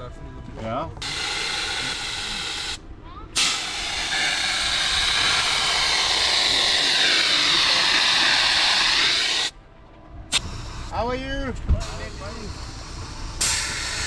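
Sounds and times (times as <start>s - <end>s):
air hissing through tyre hose: 1.0s - 2.8s, 3.4s - 9.5s, 10.3s - 11.2s, 11.8s - 14.0s.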